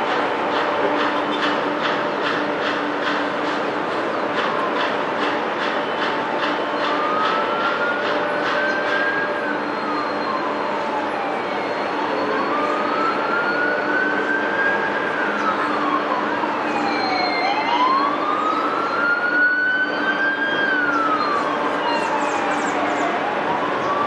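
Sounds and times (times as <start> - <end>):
siren wailing: 6.0 - 24.0
fainter higher siren: 6.6 - 24.0.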